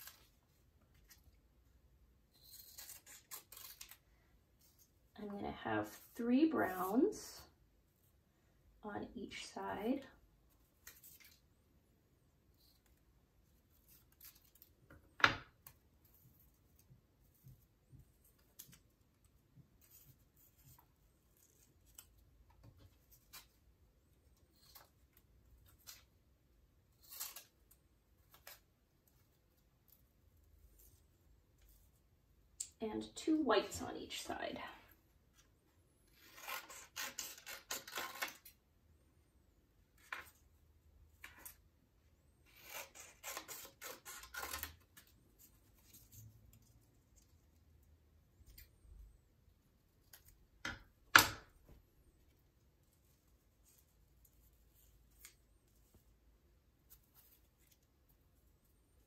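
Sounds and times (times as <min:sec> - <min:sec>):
scissors snipping paper: 0:02.3 - 0:04.0, 0:36.1 - 0:38.6, 0:42.4 - 0:45.1
paper strips rustling: 0:02.3 - 0:05.0.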